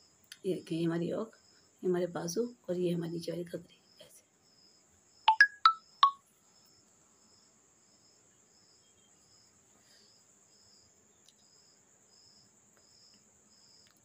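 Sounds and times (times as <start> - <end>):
cricket chirping: 3.9 - 14.0.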